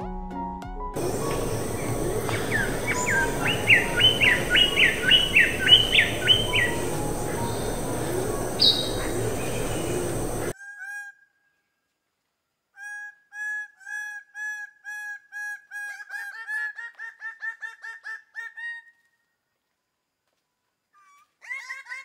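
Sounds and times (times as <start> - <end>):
birds giving courtship calls: 1.0 - 10.5
forest hiss: 1.0 - 10.5
insect whine: 1.0 - 10.5.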